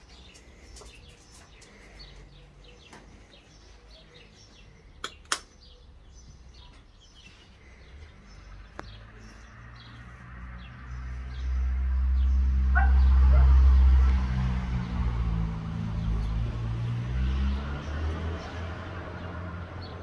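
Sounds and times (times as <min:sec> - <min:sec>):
small birds chirping: 0:00.0 - 0:20.0
sharp clicks: 0:05.0 - 0:05.6.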